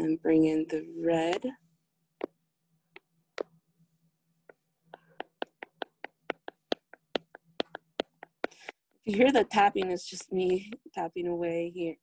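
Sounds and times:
taps on a touchscreen: 4.5 - 10.9.

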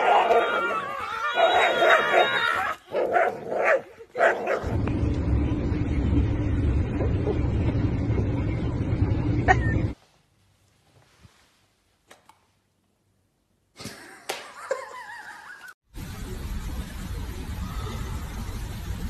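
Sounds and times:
dog barking: 2.9 - 4.7.

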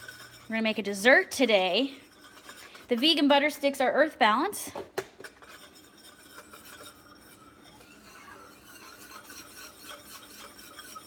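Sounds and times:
utensil scraping a pan: 0.0 - 11.0
sugar syrup bubbling in a pan: 5.5 - 11.0.

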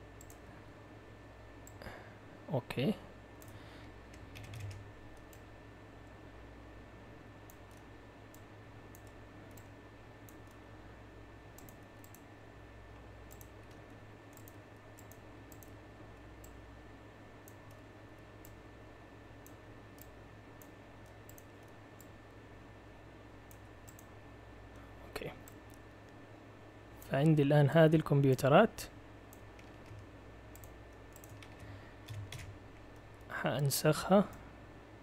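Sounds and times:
low hum and hiss: 0.0 - 35.0
computer mouse clicks: 0.2 - 0.4, 3.4 - 5.5, 7.5 - 10.6, 11.5 - 12.3, 13.3 - 15.8, 19.4 - 22.1, 23.5 - 24.1, 29.3 - 33.1.

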